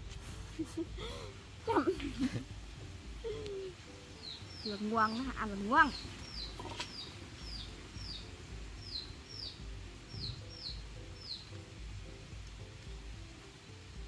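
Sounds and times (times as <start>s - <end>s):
small bird chirping: 3.2s - 12.5s.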